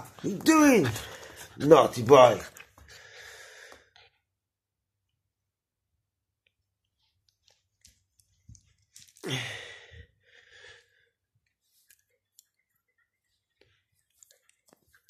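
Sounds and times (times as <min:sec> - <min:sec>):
faint clicks and rustles: 0:06.4 - 0:09.2, 0:11.4 - 0:15.0.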